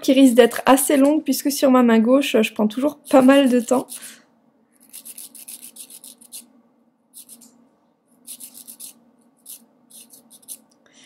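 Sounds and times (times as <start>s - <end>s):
nail file rasping: 4.8s - 6.5s, 7.1s - 7.6s, 8.2s - 10.8s.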